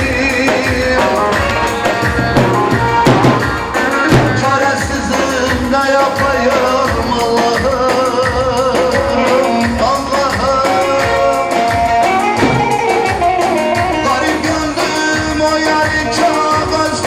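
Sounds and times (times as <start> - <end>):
drum keeping steady beat: 0.0 - 17.0.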